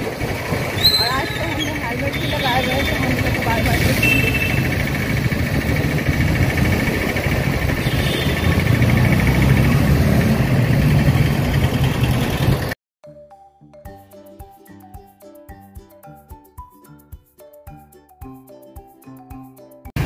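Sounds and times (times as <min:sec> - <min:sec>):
engine hum: 0:00.0 - 0:12.8
road and wind noise: 0:00.0 - 0:12.8.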